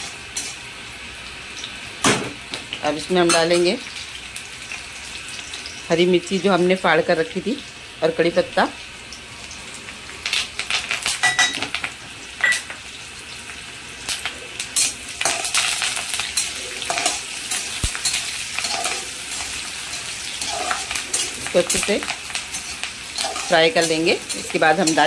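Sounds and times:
chillies sizzling in hot oil: 0.0s - 25.0s
utensil scraping and clinking pan: 14.8s - 25.0s.

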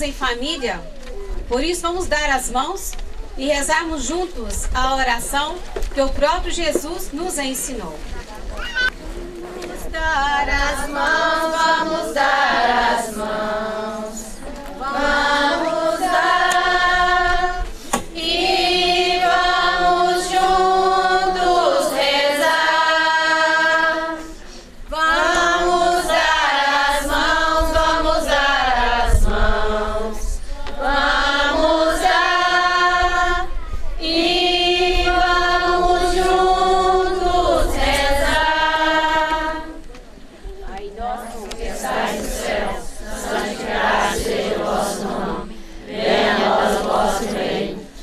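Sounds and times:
group singing a hymn: 9.1s - 40.0s, 40.6s - 48.0s.

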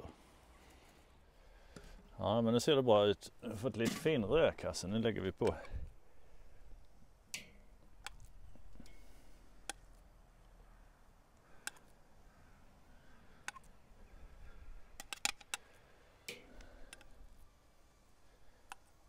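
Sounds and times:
tongs clicking on metal grate: 7.3s - 9.0s.

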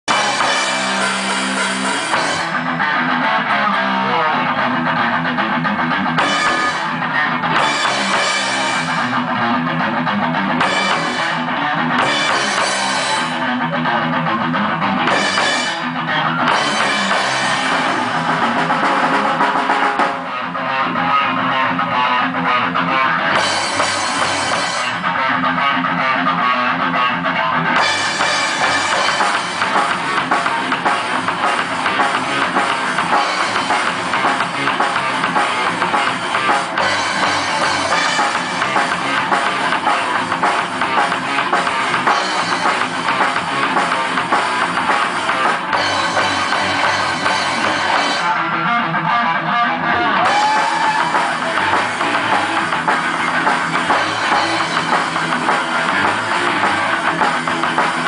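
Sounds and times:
drum kit playing: 0.0s - 48.8s, 49.8s - 58.0s
bass guitar: 0.0s - 58.0s
electric guitar: 0.0s - 58.0s
cymbals: 0.1s - 2.8s, 6.2s - 9.2s, 10.6s - 13.4s, 15.1s - 20.0s, 27.8s - 44.5s.

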